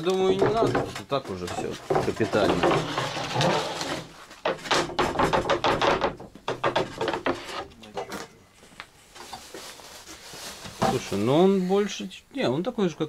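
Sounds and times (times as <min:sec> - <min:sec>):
plywood knocking and clattering: 0:00.0 - 0:08.3.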